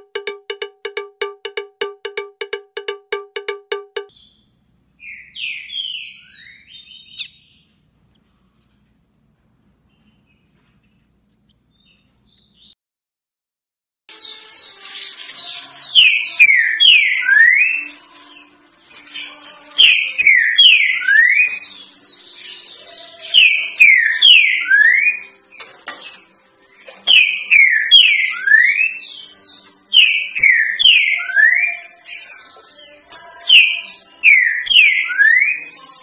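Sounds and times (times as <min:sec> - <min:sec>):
bird whistling song: 0:05.0 - 0:07.8, 0:15.5 - 0:18.0, 0:19.2 - 0:25.3, 0:27.1 - 0:32.4, 0:33.5 - 0:35.8.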